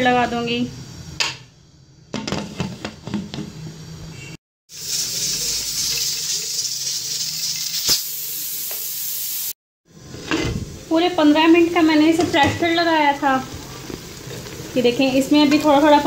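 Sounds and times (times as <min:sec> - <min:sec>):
pressure cooker hissing: 0:04.7 - 0:16.0.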